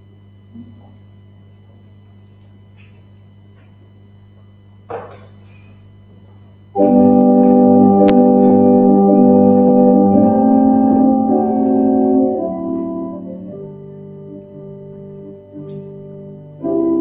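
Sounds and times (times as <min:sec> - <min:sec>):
church organ chords: 0:06.7 - 0:17.0.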